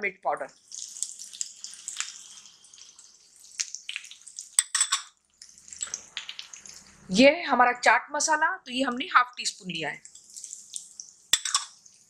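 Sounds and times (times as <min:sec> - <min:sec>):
crackles and pops: 0:00.5 - 0:07.1, 0:10.0 - 0:12.0
spices sizzling in hot oil: 0:00.5 - 0:07.1, 0:09.4 - 0:12.0.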